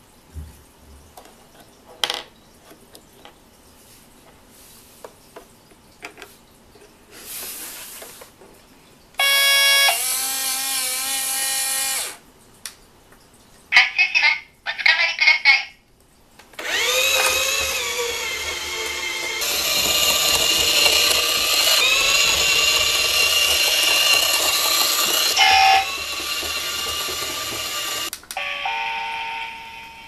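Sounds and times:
electric motor and gear whine: 0:09.2 - 0:12.2, 0:16.6 - 0:29.0.

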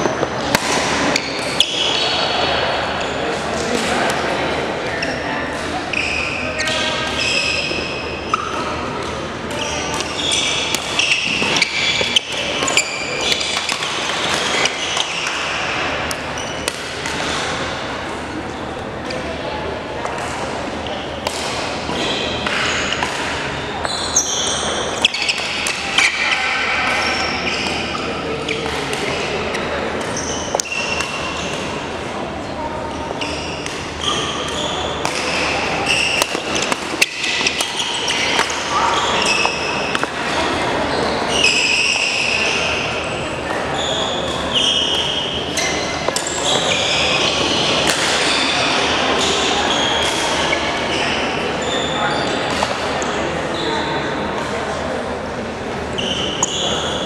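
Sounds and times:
racket hitting shuttlecock: 0:00.1 - 0:02.0, 0:09.0 - 0:17.7, 0:21.2 - 0:23.5, 0:28.6 - 0:31.7, 0:33.6 - 0:40.5, 0:47.8 - 0:48.3
racket striking shuttlecock: 0:00.1 - 0:02.0, 0:33.6 - 0:38.7, 0:39.3 - 0:40.5, 0:47.8 - 0:48.3
shoes squeaking on floor: 0:04.9 - 0:08.6, 0:09.6 - 0:15.3, 0:21.9 - 0:28.7, 0:29.5 - 0:31.8, 0:32.9 - 0:53.9, 0:55.9 - 0:57.0.

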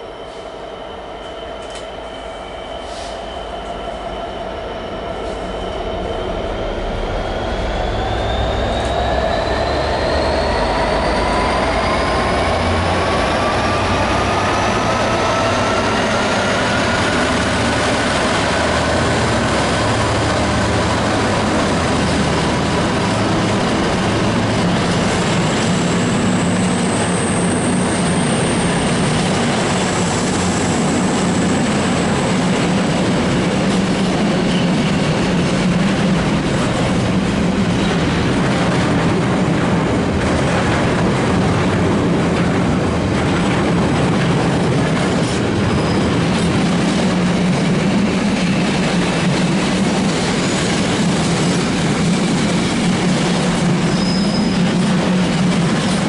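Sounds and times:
high wheel squeal: 0:00.0 - 0:23.8, 0:24.5 - 0:31.7, 0:45.6 - 0:46.3, 0:53.7 - 0:55.0
diesel locomotive passing: 0:00.0 - 0:56.0
train wagons running: 0:01.3 - 0:03.8, 0:05.2 - 0:56.0.

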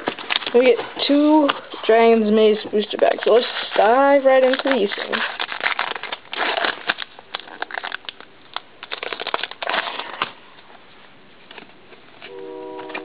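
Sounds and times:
foil wrapper crinkling: 0:00.0 - 0:10.4
cards being handled: 0:00.0 - 0:10.7
steady pitched tone: 0:12.3 - 0:13.0.

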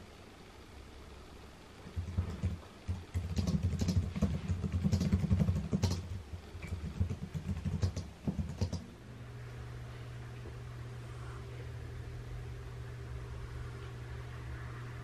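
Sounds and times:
fast typing on keyboard: 0:01.8 - 0:08.8.

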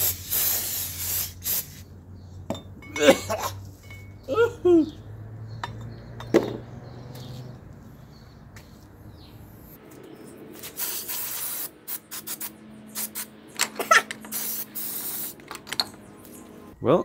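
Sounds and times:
aerosol spray hissing: 0:00.0 - 0:01.8, 0:10.6 - 0:13.3, 0:14.2 - 0:15.4.

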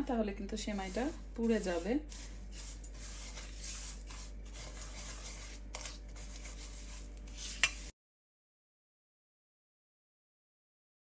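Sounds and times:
spatula scraping a frying pan: 0:00.6 - 0:07.9.

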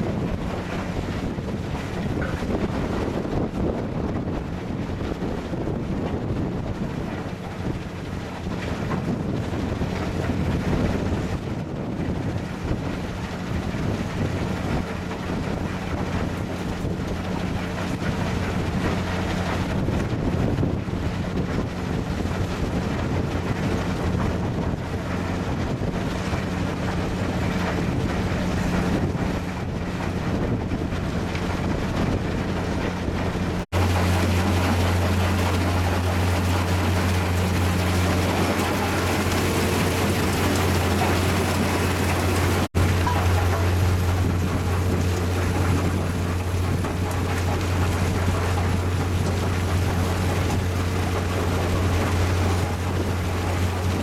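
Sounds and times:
constant rushing noise: 0:00.0 - 0:54.0
wind on microphone: 0:00.0 - 0:54.0
machine hum: 0:32.5 - 0:54.0.

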